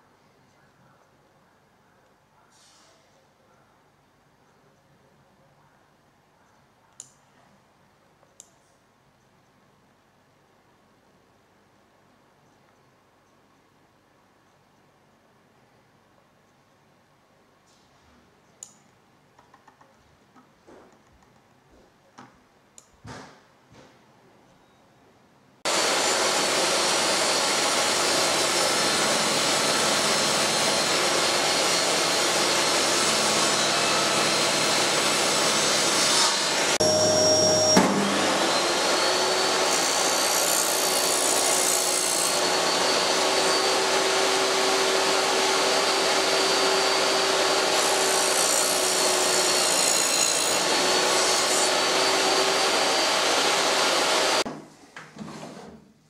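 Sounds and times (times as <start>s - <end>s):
table saw cutting wood: 25.7s - 54.4s
steady whine: 36.8s - 39.3s.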